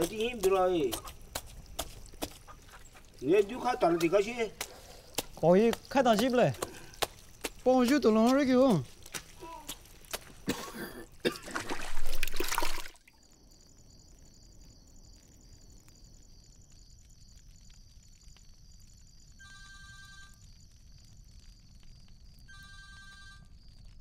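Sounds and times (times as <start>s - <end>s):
water splashing in metal bowl: 11.3s - 13.1s
phone ringtone beeping: 19.4s - 20.3s, 22.5s - 23.5s.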